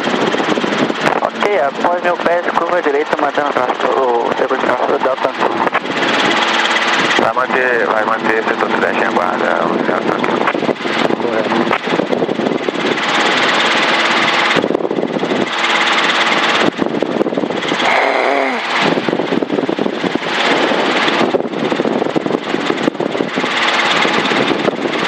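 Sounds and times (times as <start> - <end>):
helicopter engine and rotor noise: 0.0 - 25.0.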